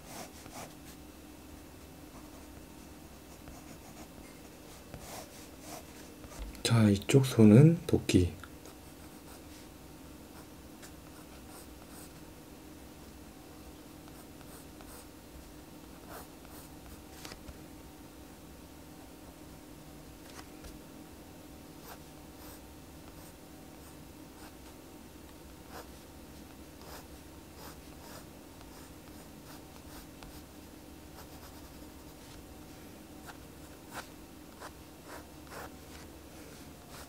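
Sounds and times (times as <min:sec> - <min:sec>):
faint steady hum: 0:00.0 - 0:37.0
pencil scratching on paper: 0:26.8 - 0:30.4.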